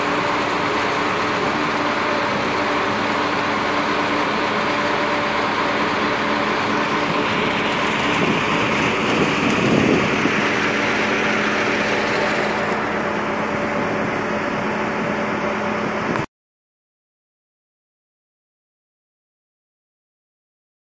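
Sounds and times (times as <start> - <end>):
boat engine humming: 0.0 - 16.3.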